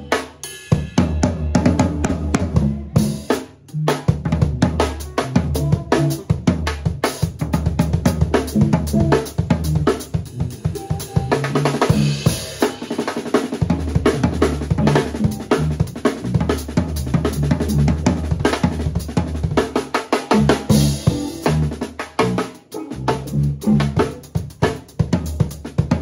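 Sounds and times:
drum kit solo: 0:00.0 - 0:26.0.

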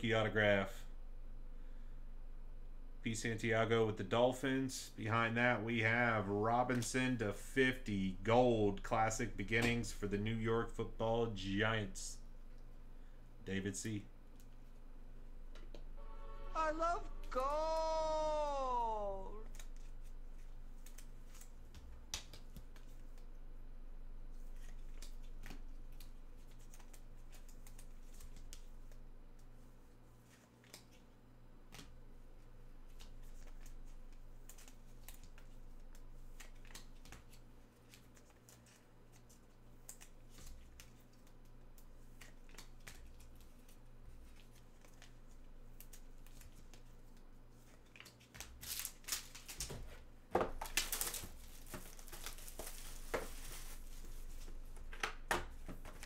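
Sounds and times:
faint steady hum: 0:00.0 - 0:56.0
cards clicking and rustling: 0:19.5 - 0:23.3, 0:32.8 - 0:49.8
packaging crinkling: 0:50.6 - 0:54.6.

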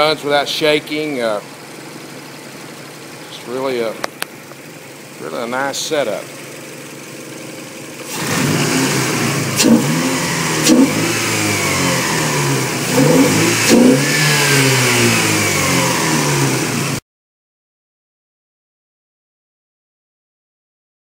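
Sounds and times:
car engine revving: 0:08.0 - 0:17.0.

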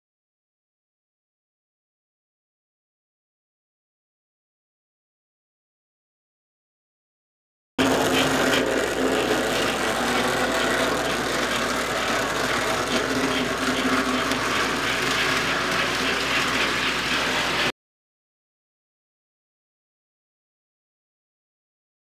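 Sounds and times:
toy train motor whirring: 0:07.8 - 0:17.7
wheels rattling on track: 0:07.8 - 0:17.7.

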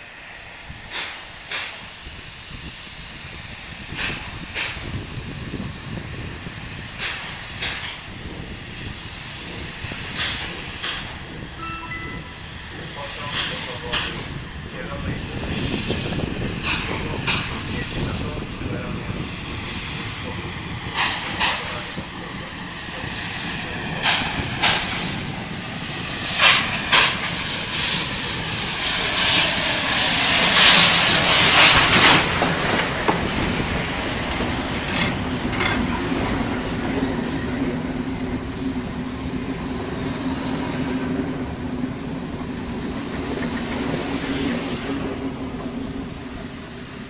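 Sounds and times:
loud rush of steam: 0:00.0 - 0:47.0
steam locomotive chuffing: 0:00.5 - 0:47.0
train carriages rolling on rails: 0:12.7 - 0:47.0.

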